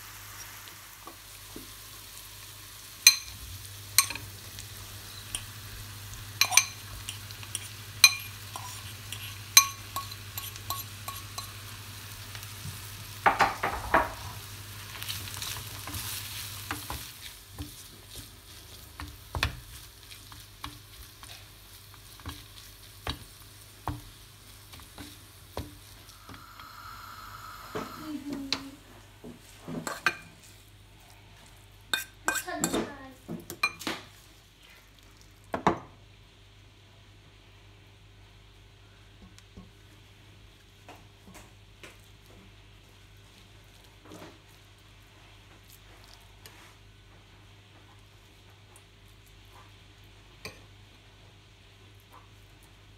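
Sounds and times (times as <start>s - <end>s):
fish sizzling in pan: 0.0s - 33.2s
scrapes and taps in pan: 6.4s - 11.6s, 29.3s - 30.2s.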